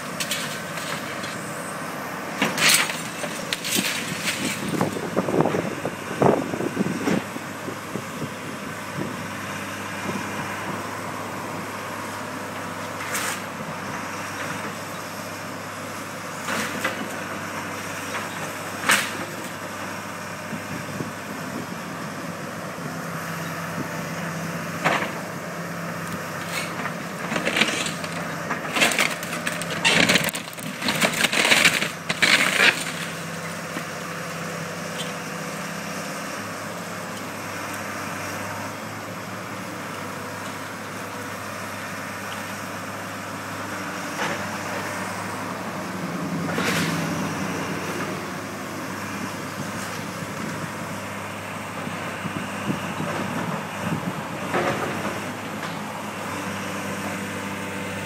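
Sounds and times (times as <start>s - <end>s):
excavator engine running: 0.0s - 58.0s
wood cracking and splintering: 27.2s - 33.4s.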